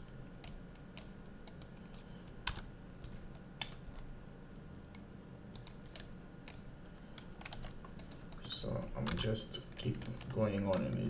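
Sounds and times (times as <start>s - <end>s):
low steady hum: 0.0s - 11.0s
computer keys clicking: 0.3s - 4.1s, 4.9s - 6.6s, 7.2s - 11.0s.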